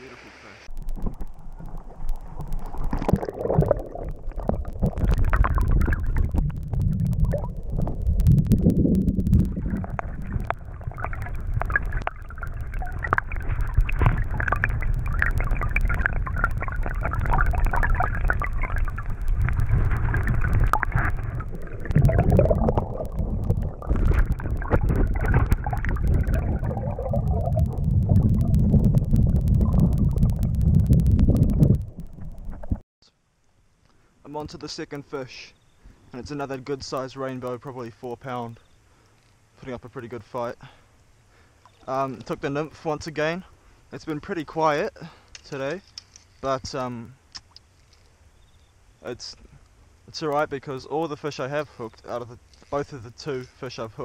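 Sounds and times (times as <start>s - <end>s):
muffled underwater stream gurgling: 0.3s - 32.8s
water moving against camera housing: 0.7s - 32.8s.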